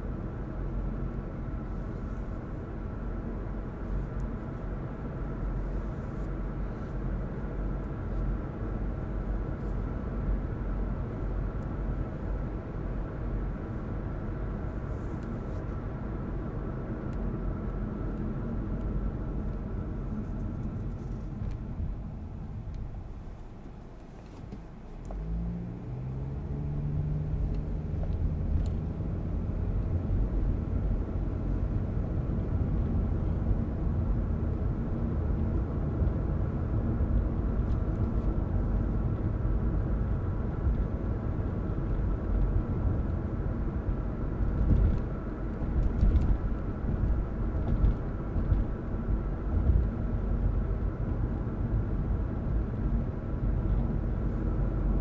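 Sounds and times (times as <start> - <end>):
car engine accelerating: 24.4 - 33.2.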